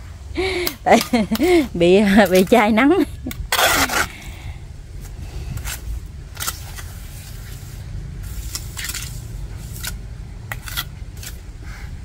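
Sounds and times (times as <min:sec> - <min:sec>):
steady low rumble: 0:00.0 - 0:12.0
trowel scraping mortar on bricks: 0:01.3 - 0:04.3, 0:05.6 - 0:11.4.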